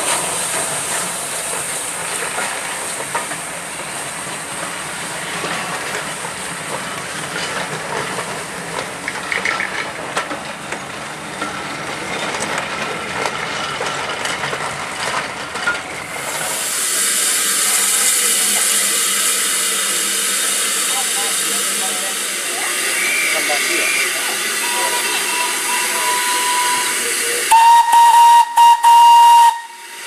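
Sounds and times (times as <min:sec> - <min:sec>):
steam hiss: 0:00.0 - 0:09.4, 0:15.9 - 0:30.0
train wheels clicking over rail joints: 0:00.0 - 0:21.8
wheel squeal: 0:22.9 - 0:27.1.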